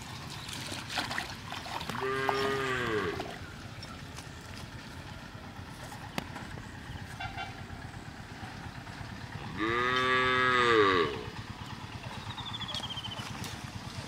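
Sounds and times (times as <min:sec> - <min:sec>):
cow mooing: 0:01.9 - 0:03.4, 0:09.4 - 0:11.4.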